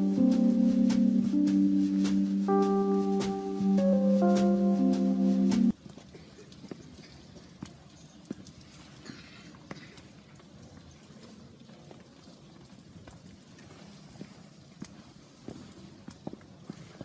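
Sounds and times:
low hiss: 0.0 - 11.8
footsteps on concrete stairs: 0.1 - 6.9.

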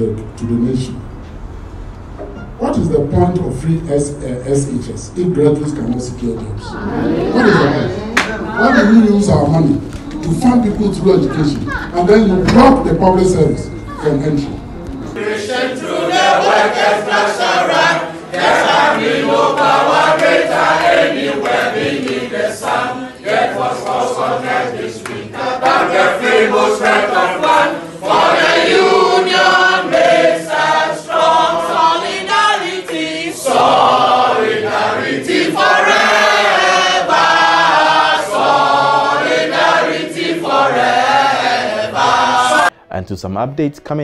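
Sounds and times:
group singing in unison: 15.0 - 42.8.

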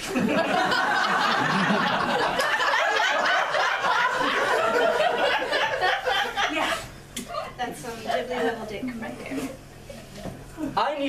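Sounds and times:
audience laughing: 0.0 - 6.9.

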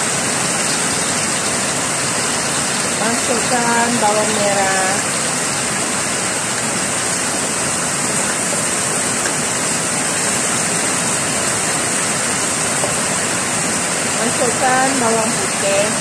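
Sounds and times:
heavy rain pouring: 0.0 - 16.0
food sizzling in hot oil: 2.9 - 5.1.

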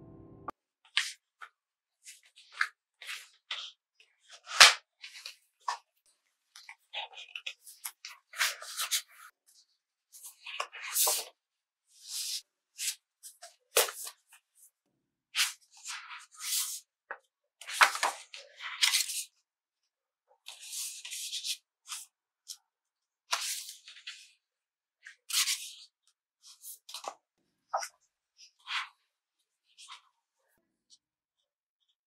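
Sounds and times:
sketchbook pages turning: 2.1 - 5.9, 6.5 - 9.2, 15.4 - 16.9, 17.6 - 19.3, 20.4 - 22.6, 23.3 - 24.4, 25.2 - 29.1.

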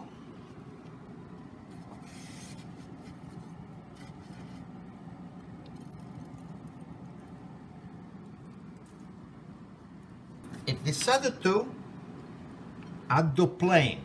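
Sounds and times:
faint scraping and rustling: 1.6 - 4.9.

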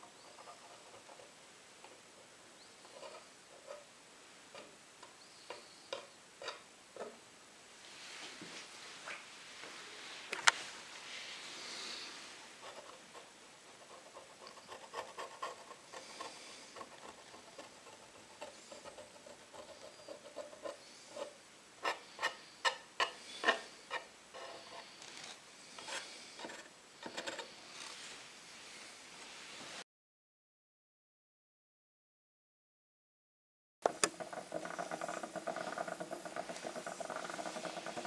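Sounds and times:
tool scraping wood: 12.6 - 28.1, 33.8 - 38.0.

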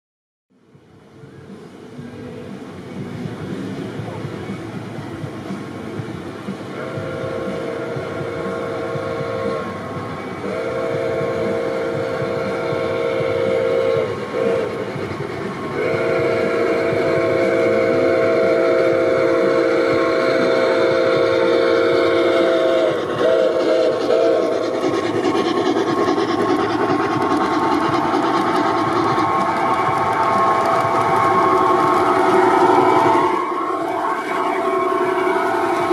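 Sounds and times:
model train running on track: 0.5 - 35.9
model train steam whistle: 6.7 - 25.2, 28.0 - 35.9.

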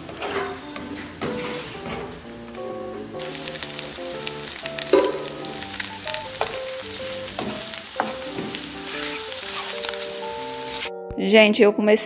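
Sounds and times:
spatula scraping a pan: 0.0 - 2.3, 4.8 - 10.9
eggs sizzling in a frying pan: 0.0 - 10.9
soft background music: 0.0 - 12.0.

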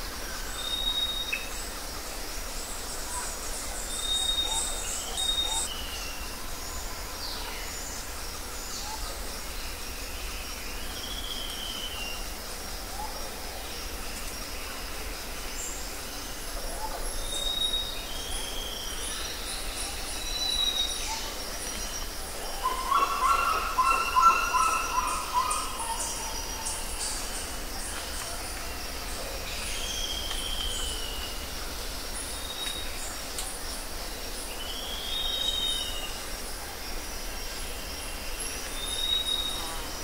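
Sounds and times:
insects chirping: 0.0 - 40.0
loud layered bird call: 22.5 - 27.6.

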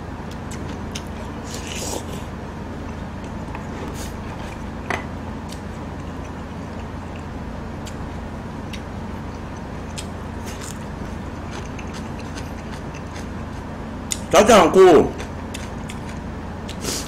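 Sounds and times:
steady low hum: 0.0 - 17.0
chewing and mouth sounds: 0.3 - 4.8, 5.4 - 8.0, 8.6 - 14.3, 15.1 - 17.0.

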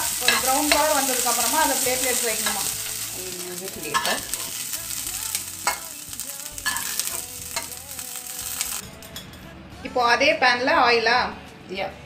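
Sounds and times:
food sizzling in hot oil: 0.0 - 8.8.

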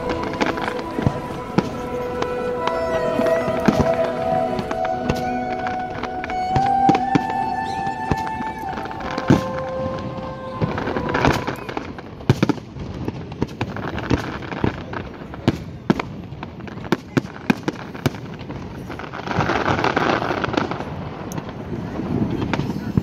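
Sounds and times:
fireworks bangs: 0.0 - 23.0.

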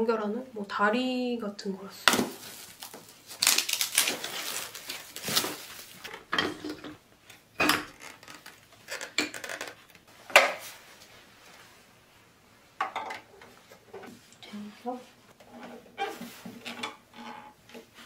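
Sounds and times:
plastic wrap crinkling: 2.1 - 6.2
plastic parts knocking and clicking: 7.6 - 10.6.

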